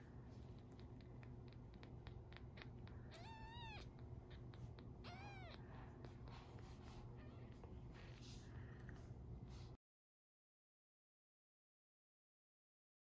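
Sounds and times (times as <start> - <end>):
kitten mewing: 0.6 - 6.3.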